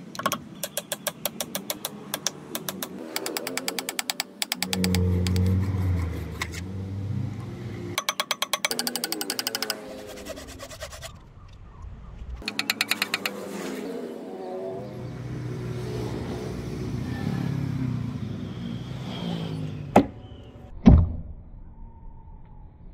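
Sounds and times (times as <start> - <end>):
wavering whirring: 2.3 - 8.0, 12.2 - 19.9.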